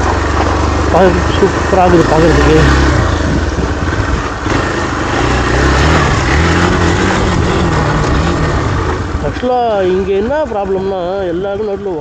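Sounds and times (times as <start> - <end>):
steady rushing noise: 0.0 - 10.9
motorcycle engine running: 0.0 - 12.0.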